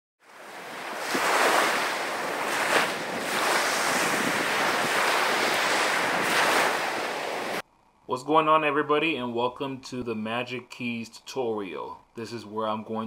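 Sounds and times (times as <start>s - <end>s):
ocean waves washing: 0.2s - 7.6s.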